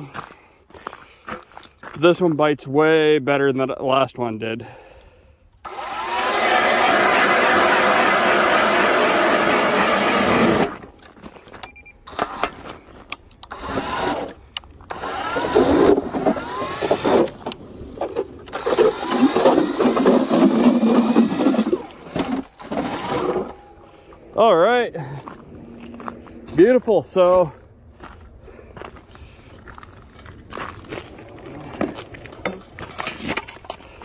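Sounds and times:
electric ice auger grinding: 5.6s - 10.9s, 13.5s - 23.9s.

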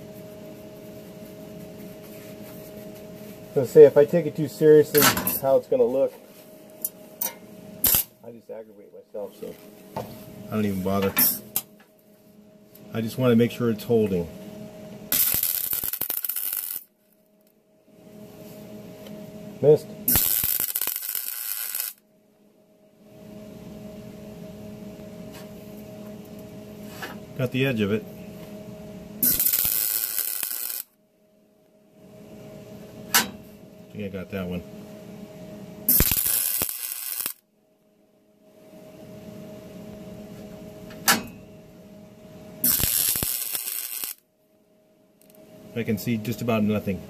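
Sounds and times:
low steady hum: 0.0s - 47.0s
welder crackling arc: 7.8s - 8.2s, 15.1s - 16.9s, 19.7s - 22.0s, 29.2s - 31.0s, 35.9s - 37.4s, 42.6s - 44.2s.

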